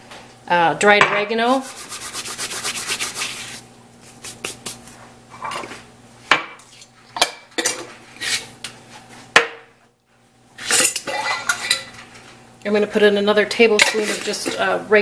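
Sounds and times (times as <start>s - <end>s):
kitchen utensils clinking and knocking: 10.6s - 12.0s, 13.7s - 14.7s.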